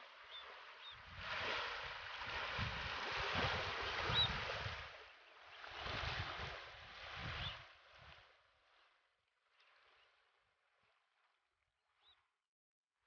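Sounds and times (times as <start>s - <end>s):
wading birds calling: 0.0s - 1.1s, 3.7s - 6.6s
small waves on stony shore: 0.0s - 12.3s.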